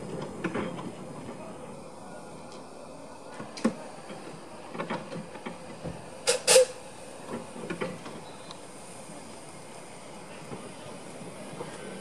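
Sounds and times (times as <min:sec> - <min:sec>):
steam locomotives moving: 0:00.0 - 0:12.0.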